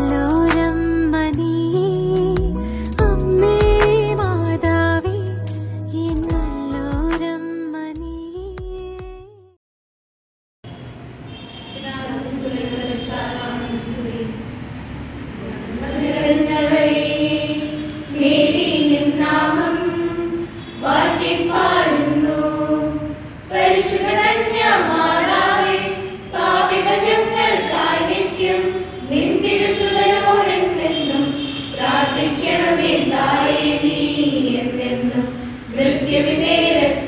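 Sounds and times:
children singing a hymn: 15.6 - 37.0.

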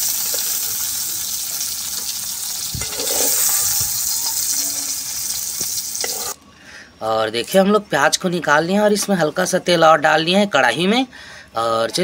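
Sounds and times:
onions sizzling in hot oil: 0.0 - 6.4.

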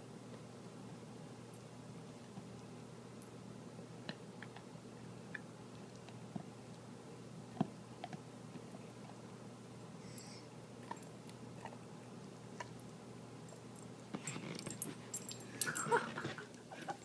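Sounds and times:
dog chewing: 7.5 - 9.2, 10.8 - 16.3
collar tag jingling: 13.4 - 17.0.

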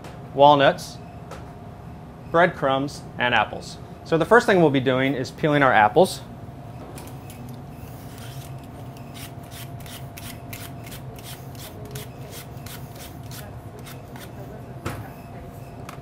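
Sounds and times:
blade scraping apple skin: 7.9 - 14.4.

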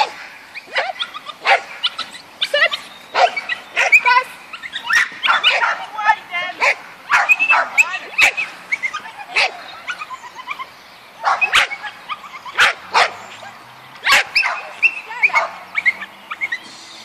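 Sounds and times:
small dog barking: 0.7 - 2.0, 3.1 - 4.1, 4.8 - 5.9, 6.6 - 8.4, 9.3 - 10.0, 11.2 - 13.2, 14.0 - 16.5.

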